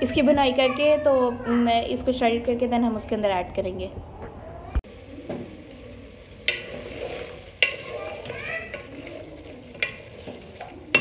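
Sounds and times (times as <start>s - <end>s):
spoon stirring broth: 5.4s - 11.0s
wooden spoon knocking on pot: 7.6s - 8.9s, 9.7s - 11.0s.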